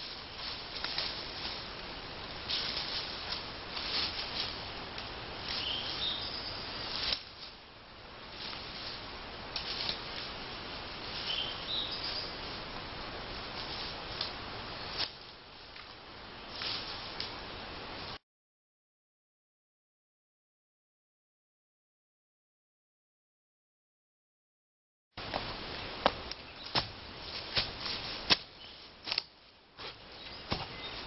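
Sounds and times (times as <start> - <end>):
rustling: 0.0 - 6.2, 8.3 - 12.7, 13.3 - 17.4, 25.2 - 31.0
steady hiss: 0.0 - 18.2, 25.2 - 31.0.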